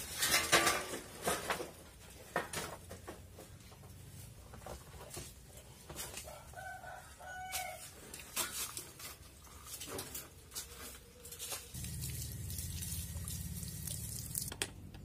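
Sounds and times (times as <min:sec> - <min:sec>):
metal clanks and knocks: 0:00.1 - 0:03.3
rooster crowing: 0:06.3 - 0:07.9.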